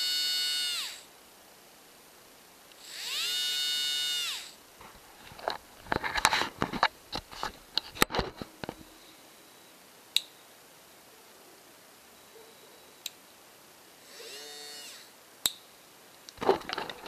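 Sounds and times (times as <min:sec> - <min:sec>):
small electric motor whine: 0:00.0 - 0:01.1, 0:02.8 - 0:04.6, 0:14.0 - 0:15.2
rustling handling noise: 0:04.8 - 0:08.9, 0:16.4 - 0:17.0.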